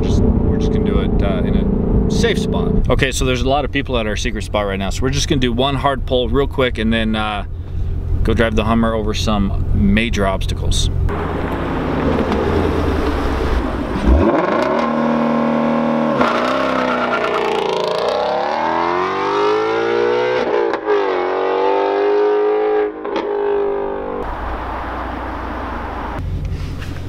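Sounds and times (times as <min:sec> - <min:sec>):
sports car accelerating hard: 0:11.1 - 0:26.6.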